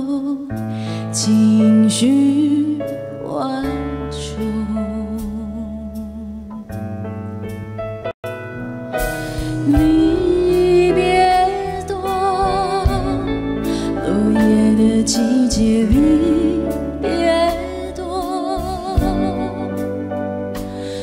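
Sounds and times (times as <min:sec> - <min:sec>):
woman singing pop ballad: 0:00.0 - 0:06.6, 0:09.2 - 0:21.0
band backing: 0:05.1 - 0:21.0.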